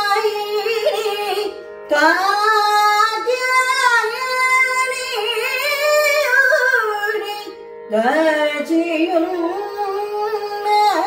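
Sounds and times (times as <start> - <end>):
woman singing: 0.0 - 11.0.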